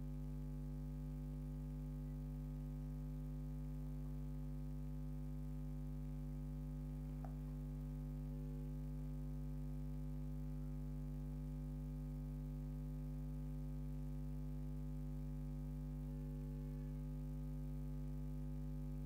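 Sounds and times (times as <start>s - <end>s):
low electrical hum: 0.0s - 19.0s
faint tick: 7.2s - 7.4s.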